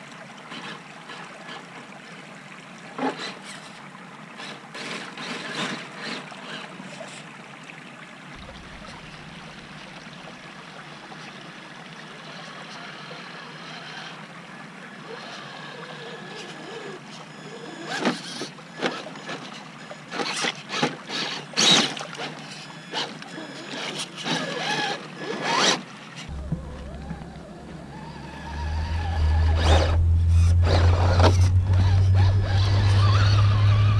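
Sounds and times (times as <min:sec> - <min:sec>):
stream water trickling: 0:00.0 - 0:33.9
tires splashing through water: 0:00.0 - 0:33.9
toy car motor whirring: 0:00.5 - 0:01.8, 0:03.0 - 0:03.8, 0:04.4 - 0:07.2, 0:12.3 - 0:14.3, 0:14.9 - 0:33.9.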